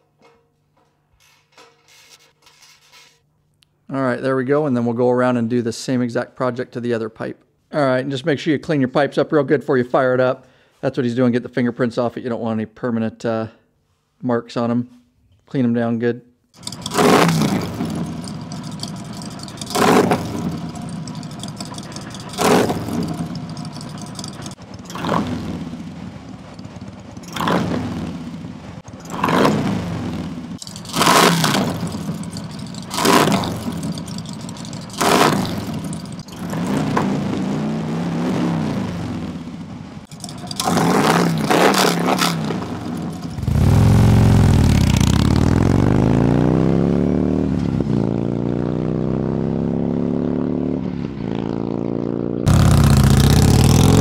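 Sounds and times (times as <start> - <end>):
motorcycle accelerating away: 16.6 - 54.0
motorcycle engine revving: 16.6 - 54.0.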